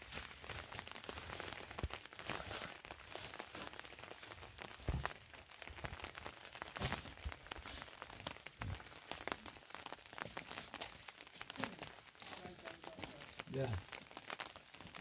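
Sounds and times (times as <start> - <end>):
cloth sack rustling: 0.0 - 5.6.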